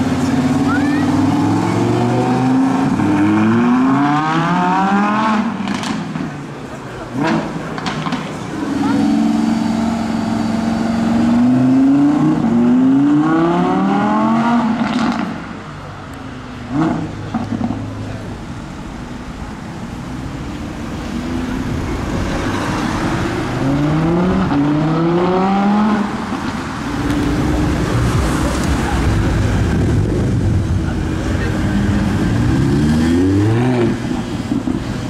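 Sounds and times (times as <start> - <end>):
car engine accelerating hard: 0.0 - 6.2, 6.9 - 15.6, 16.6 - 35.0
traffic noise: 0.0 - 35.0.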